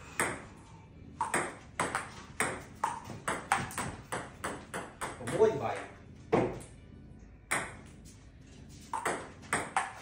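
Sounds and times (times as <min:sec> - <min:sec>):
table tennis ball hits: 0:00.1 - 0:00.6, 0:01.2 - 0:06.8, 0:07.5 - 0:08.0, 0:08.8 - 0:10.0.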